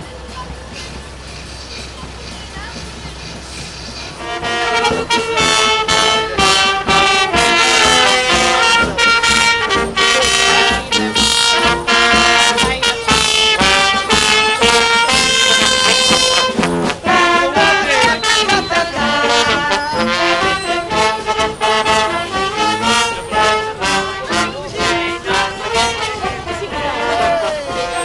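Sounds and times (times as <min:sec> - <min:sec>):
brass band playing: 0:01.1 - 0:28.0.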